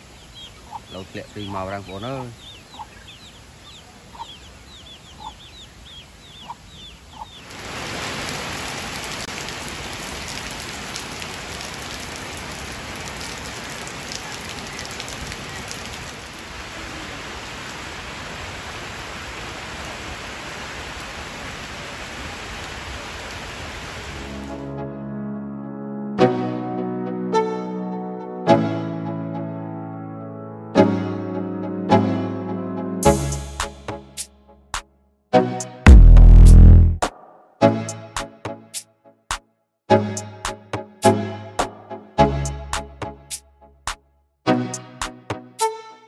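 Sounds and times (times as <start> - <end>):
chickens peeping: 0.0 - 7.5.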